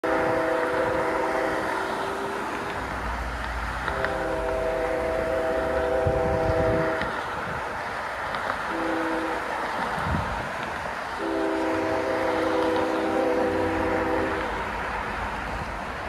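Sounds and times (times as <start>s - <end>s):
locomotive air horn blasts: 0.0s - 2.8s, 3.8s - 7.4s, 8.7s - 9.6s, 11.2s - 14.7s
steady hiss: 0.0s - 16.0s.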